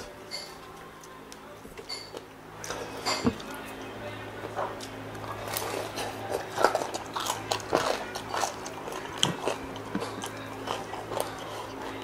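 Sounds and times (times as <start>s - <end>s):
crunchy chewing: 4.8s - 12.0s.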